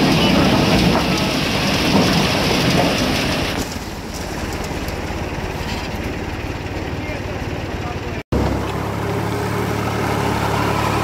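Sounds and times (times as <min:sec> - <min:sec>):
corn clattering into steel trailer: 0:00.0 - 0:07.4
tractor engine running: 0:00.0 - 0:11.0.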